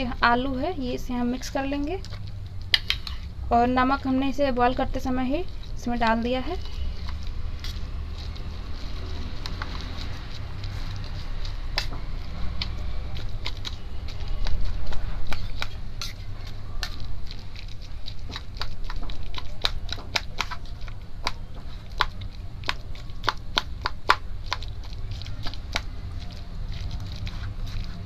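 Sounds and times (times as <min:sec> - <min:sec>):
spoon scraping a metal bowl: 0:15.2 - 0:17.0.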